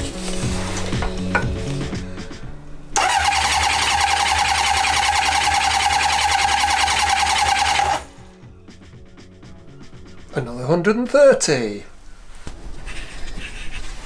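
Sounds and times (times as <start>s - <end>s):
starter motor cranking engine: 3.0s - 8.1s.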